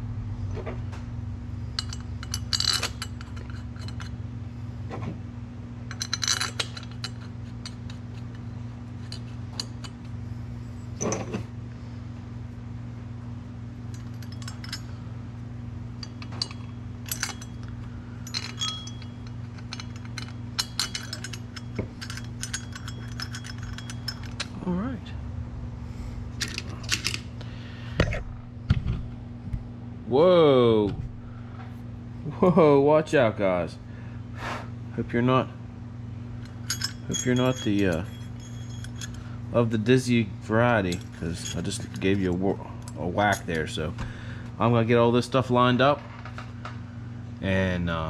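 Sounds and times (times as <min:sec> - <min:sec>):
steady low hum: 0:00.0 - 0:48.0
light metal clinks: 0:13.9 - 0:15.1, 0:15.9 - 0:24.6, 0:36.4 - 0:40.1, 0:40.7 - 0:44.2.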